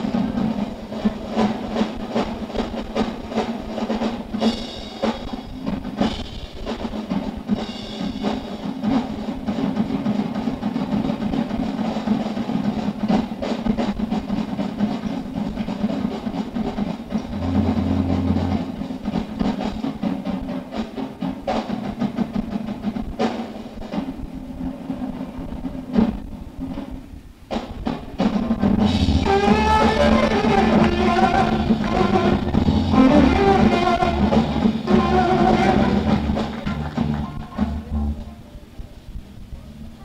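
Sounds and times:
rock drum solo: 0:00.0 - 0:40.0
cymbal crashes: 0:17.2 - 0:19.8
steady low drone: 0:17.3 - 0:19.2.

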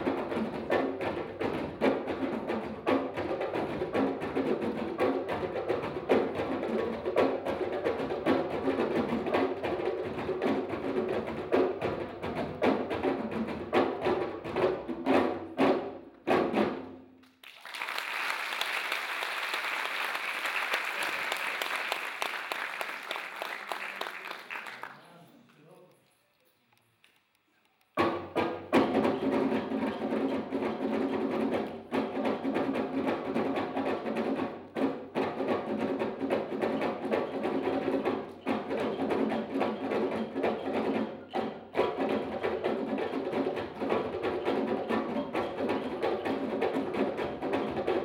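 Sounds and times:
djembe drumming: 0:00.0 - 0:17.0, 0:28.0 - 0:48.0
audience applauding: 0:17.2 - 0:25.2.

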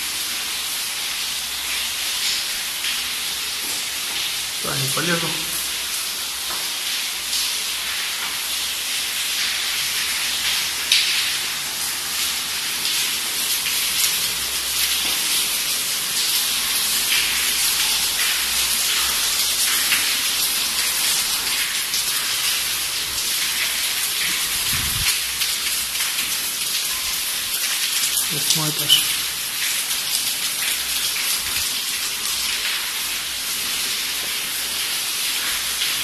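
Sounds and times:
water dripping and running: 0:00.0 - 0:36.0.

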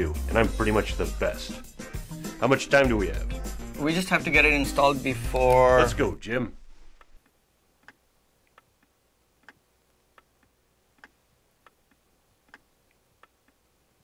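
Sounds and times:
clock ticking faintly: 0:07.0 - 0:13.7.

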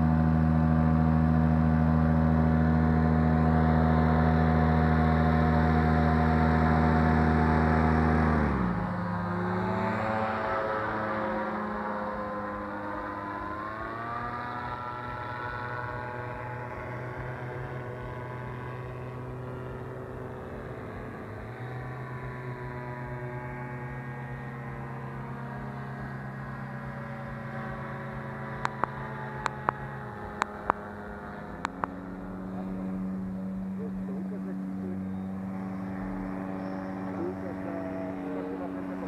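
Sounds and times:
paramotor engine droning: 0:00.0 - 0:39.0
sharp clicks: 0:28.6 - 0:29.8.

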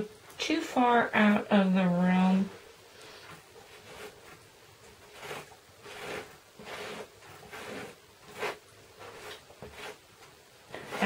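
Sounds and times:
scraper spreading paste: 0:03.1 - 0:11.0.

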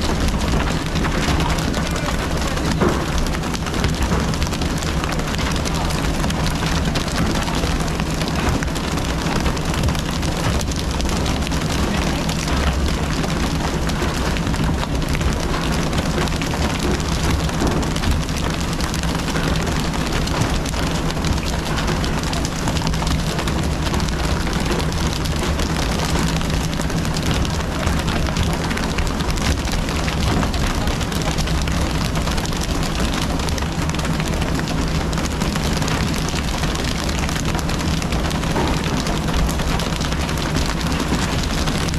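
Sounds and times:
boat engine humming: 0:00.0 - 0:41.9
rush of water from sprayers: 0:00.0 - 0:41.9
water splashing: 0:00.0 - 0:41.9.

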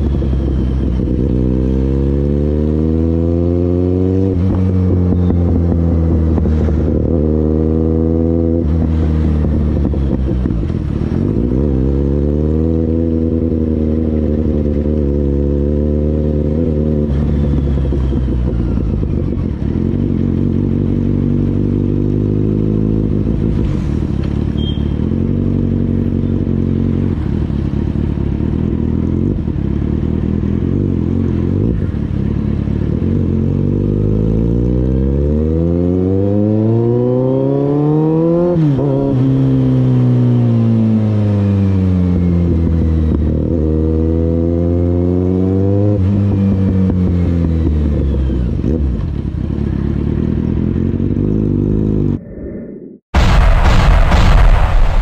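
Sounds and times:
motorcycle engine running: 0:00.0 - 0:34.0, 0:46.0 - 0:52.2.

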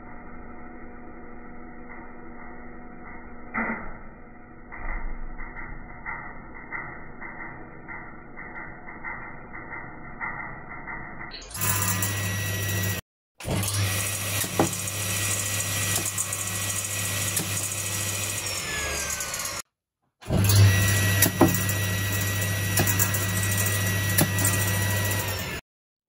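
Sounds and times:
circular saw running: 0:05.3 - 0:25.6.

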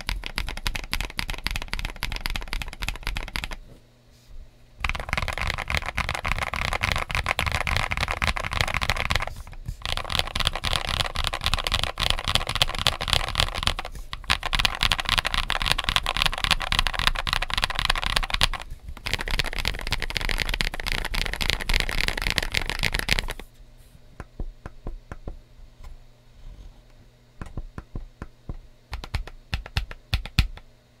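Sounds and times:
mechanical keyboard typing: 0:00.0 - 0:03.6, 0:04.8 - 0:23.4, 0:28.9 - 0:30.6.

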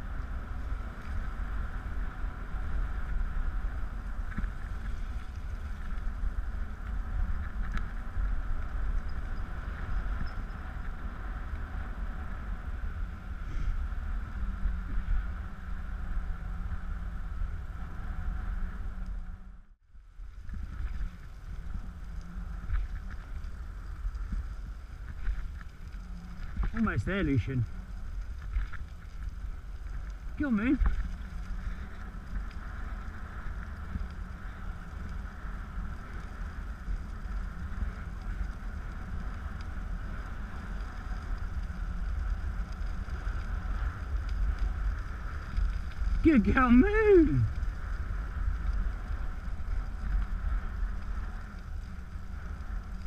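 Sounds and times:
wheeled rig rolling on dirt track: 0:00.0 - 0:53.0
wind on the microphone: 0:20.2 - 0:53.0.

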